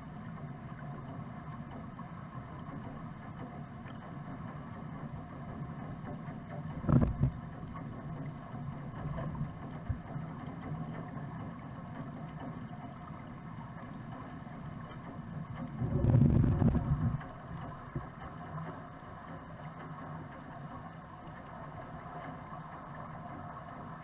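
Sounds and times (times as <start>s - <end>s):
underwater pool hum: 0.0s - 24.0s
rush of water: 6.8s - 7.4s, 14.8s - 19.2s.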